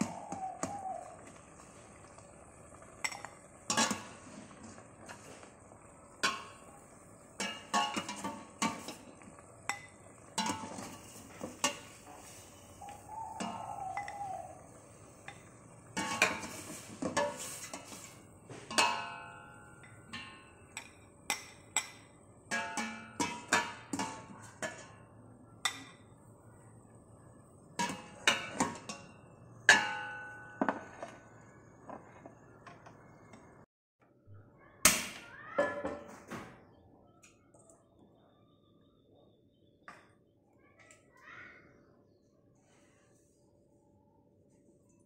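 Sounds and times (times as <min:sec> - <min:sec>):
kitchenware clinking and knocking: 0:35.6 - 0:36.5.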